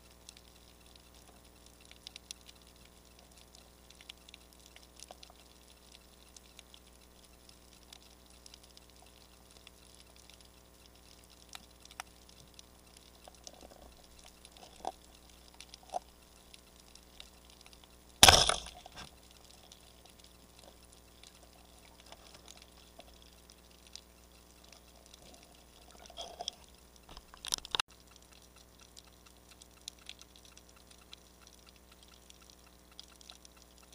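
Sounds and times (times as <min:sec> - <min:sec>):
sharp ticks: 0:00.0 - 0:33.9
underwater clicks and crackling: 0:00.0 - 0:33.9.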